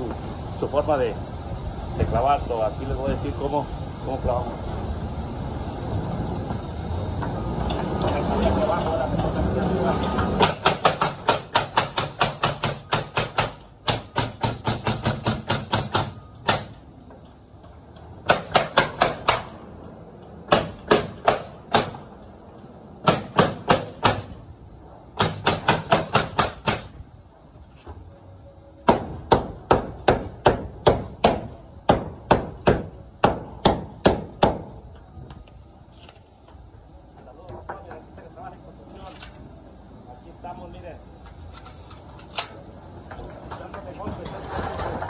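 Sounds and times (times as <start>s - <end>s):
pneumatic nailer shots: 10.2s - 16.9s, 18.2s - 19.6s, 20.5s - 22.2s, 23.0s - 24.4s, 25.1s - 27.0s, 28.8s - 34.8s.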